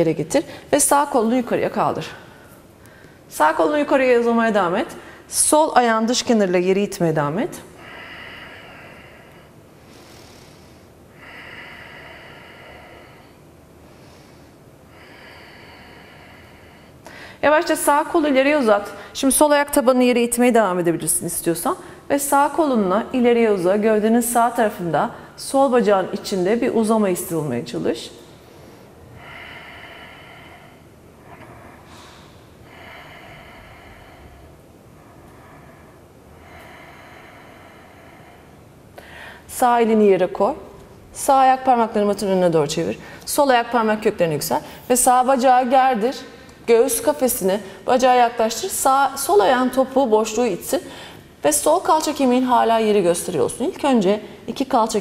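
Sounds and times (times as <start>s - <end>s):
woman breathing slowly: 2.1s - 3.3s, 7.6s - 17.4s, 28.2s - 39.5s, 50.8s - 51.4s.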